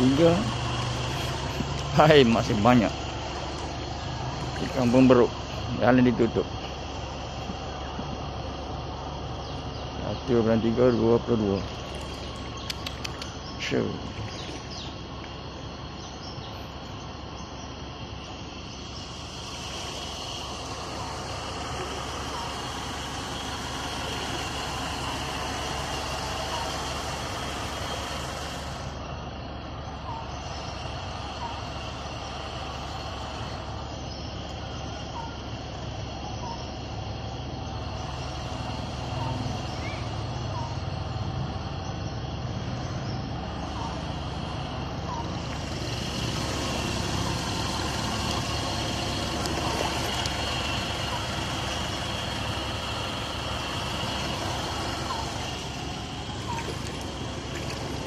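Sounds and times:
water rushing: 0.0s - 7.4s, 11.0s - 15.6s, 18.8s - 29.1s, 43.4s - 58.0s
boat motor running: 0.0s - 58.0s.

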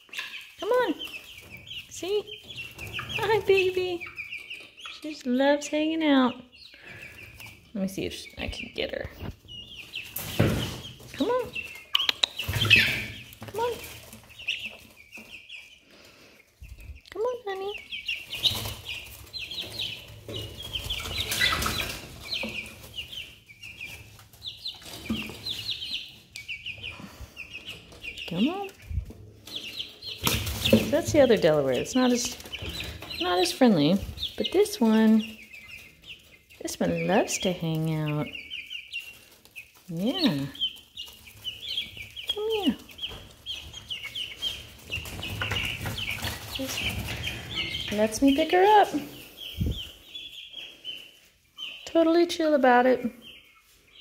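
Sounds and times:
chicks peeping: 0.0s - 54.0s
feathers and shavings rustling: 26.9s - 52.4s.

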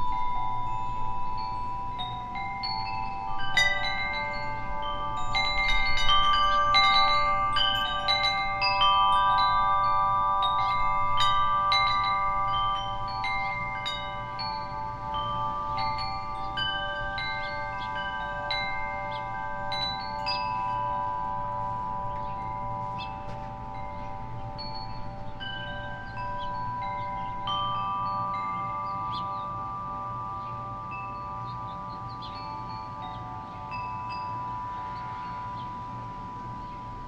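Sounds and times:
wind chime ringing: 0.0s - 37.0s.

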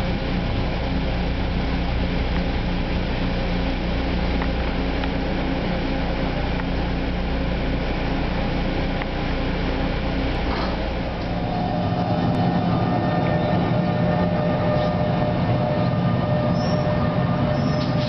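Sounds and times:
train car hum and rumble: 0.0s - 18.0s.

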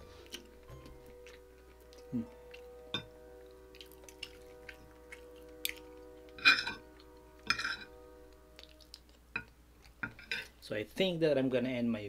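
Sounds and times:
soft background music: 0.0s - 12.0s
chewing: 0.1s - 7.2s, 8.3s - 10.6s
cutlery scraping ceramic plate: 6.4s - 6.8s, 7.5s - 7.9s, 10.0s - 10.5s.

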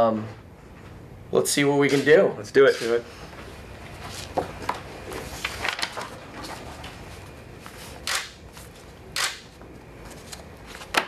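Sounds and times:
paper pages rustling: 5.1s - 9.0s, 10.0s - 11.0s.

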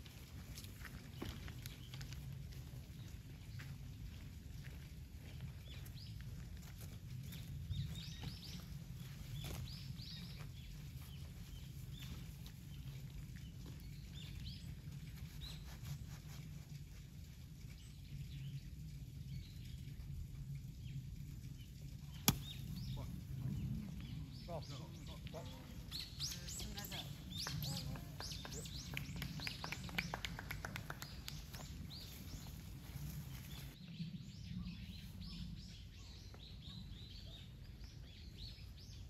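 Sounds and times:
low steady rumble: 0.0s - 39.0s
birds chirping: 20.6s - 39.0s.

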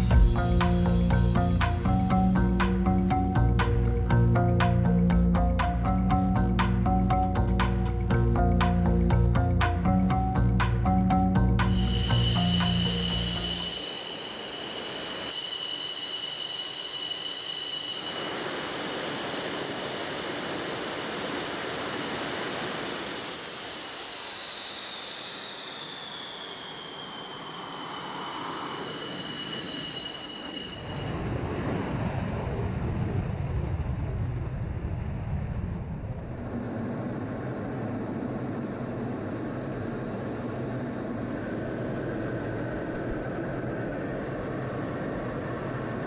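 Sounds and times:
deep rough engine rumble: 0.0s - 13.8s
jet engine whine: 0.0s - 46.0s.

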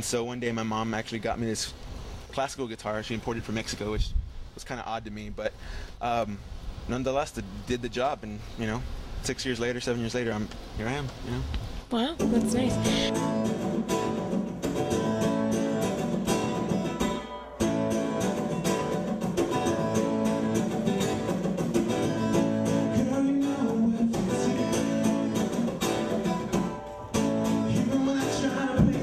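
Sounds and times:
acoustic guitar strumming: 12.2s - 29.0s.

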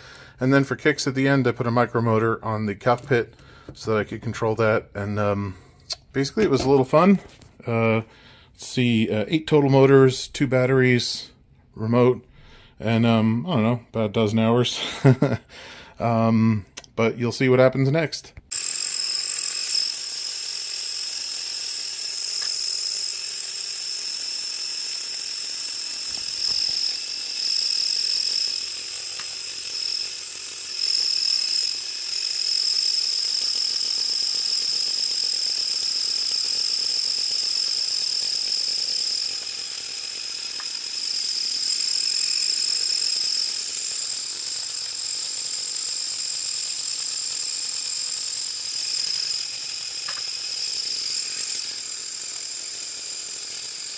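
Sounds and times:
small electric motors whining: 18.5s - 53.9s.

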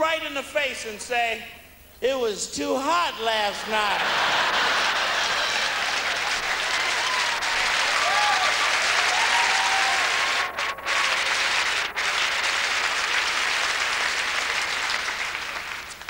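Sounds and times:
audience applauding: 3.8s - 16.0s.

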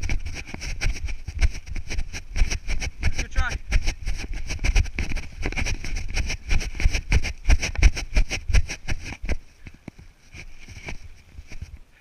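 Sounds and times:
footfalls: 0.0s - 11.6s.

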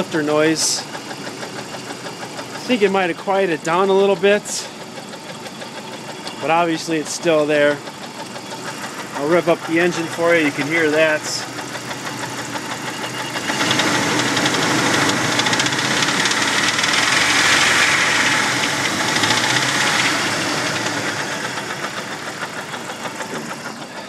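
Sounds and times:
engine knocking: 0.0s - 24.0s
car engine revving: 13.3s - 23.8s.

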